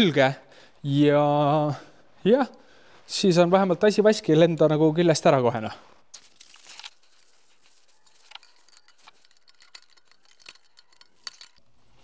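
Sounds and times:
small metallic clicks and scrapes: 0:06.1 - 0:12.0
sharp metallic ticks: 0:07.2 - 0:11.7.

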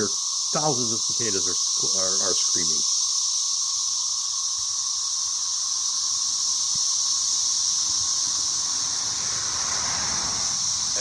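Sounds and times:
cicadas screaming chorus: 0:00.0 - 0:11.0
car going by: 0:07.8 - 0:11.0.

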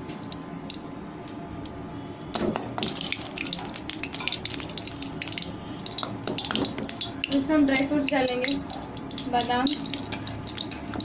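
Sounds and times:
ghee sizzling and crackling: 0:02.2 - 0:11.0.

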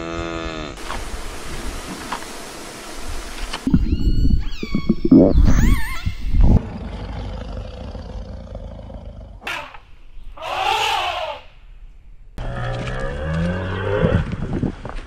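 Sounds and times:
lioness growling: 0:06.5 - 0:09.4
elephant trumpeting: 0:10.4 - 0:11.4.

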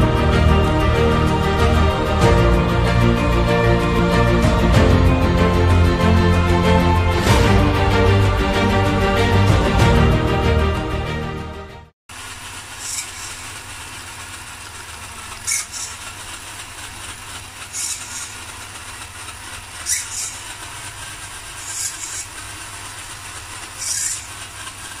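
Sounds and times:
electric motor whirring: 0:12.1 - 0:25.0.

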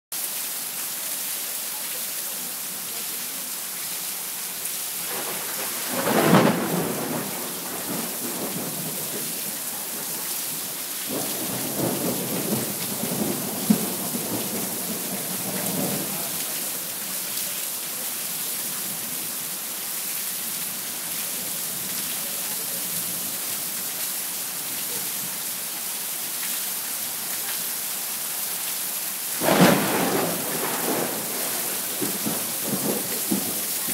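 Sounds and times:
heavy rain falling: 0:00.1 - 0:33.9
sharp thunder snap: 0:05.1 - 0:16.2, 0:29.4 - 0:33.9
loud thunderclap: 0:05.1 - 0:16.3, 0:29.4 - 0:33.9
rumble of thunder: 0:05.1 - 0:16.5, 0:29.4 - 0:33.9.

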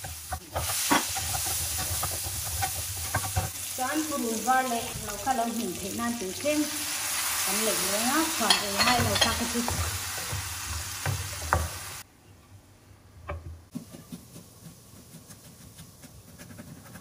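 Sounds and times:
wooden spatula stirring: 0:00.0 - 0:03.5
food sizzling in a frying pan: 0:00.0 - 0:12.0.

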